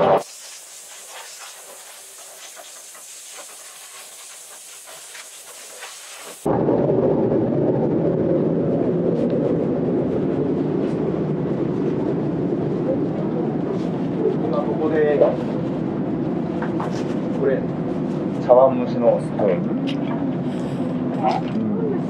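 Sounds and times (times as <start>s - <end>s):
air spray hiss: 0.0s - 6.5s
loud low rumble: 6.5s - 22.0s.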